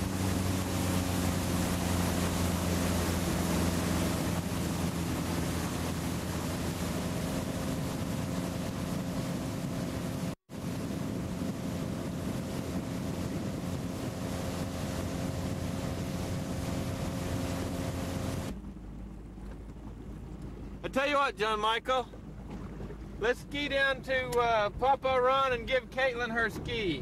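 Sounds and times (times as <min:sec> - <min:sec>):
motorboat engine running: 0:00.0 - 0:27.0
wind and water rushing: 0:00.0 - 0:27.0.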